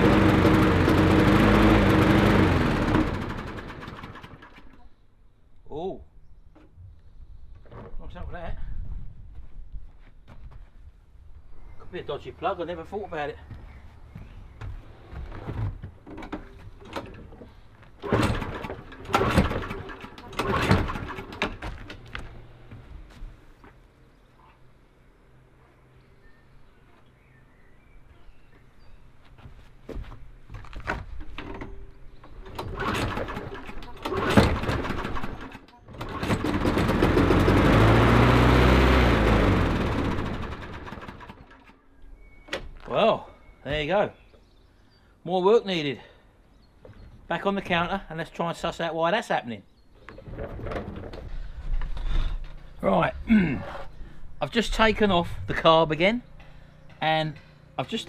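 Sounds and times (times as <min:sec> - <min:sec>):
lawnmower engine cranking: 0:00.0 - 0:04.9, 0:18.0 - 0:22.2, 0:31.4 - 0:41.8.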